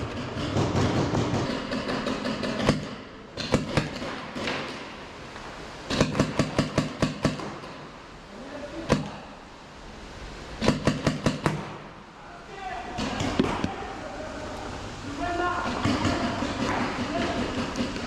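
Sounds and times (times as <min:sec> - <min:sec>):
paintball markers firing: 0:00.0 - 0:04.8, 0:05.9 - 0:07.8.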